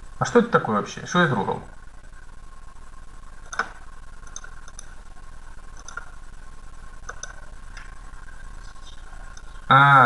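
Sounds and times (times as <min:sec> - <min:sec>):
faint electrical hum: 0:00.0 - 0:10.0
computer mouse clicks: 0:03.4 - 0:05.0, 0:05.7 - 0:06.2, 0:07.0 - 0:07.9.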